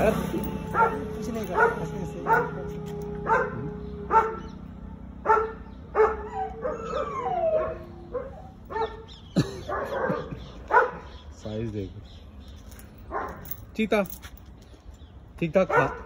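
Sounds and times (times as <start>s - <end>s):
dog barking: 0.7s - 4.6s, 5.2s - 11.2s, 13.1s - 13.5s, 15.6s - 16.0s
dog whining: 5.3s - 10.9s.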